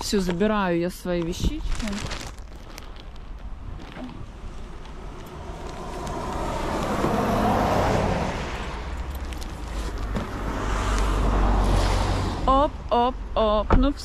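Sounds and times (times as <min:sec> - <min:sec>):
low wind rumble on microphone: 0:00.0 - 0:12.9
cars passing: 0:04.2 - 0:13.6.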